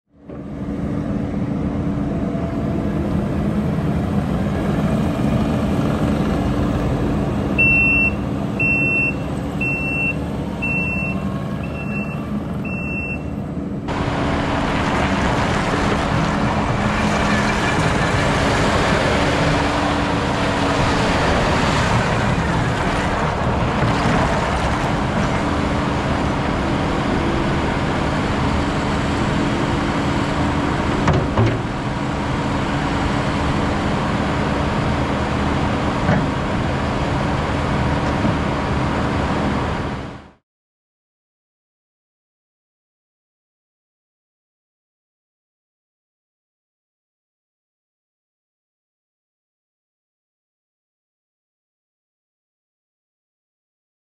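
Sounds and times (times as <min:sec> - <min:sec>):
diesel skid steer engine running: 0:00.2 - 0:40.4
reverse alarm beeps: 0:07.6 - 0:13.3.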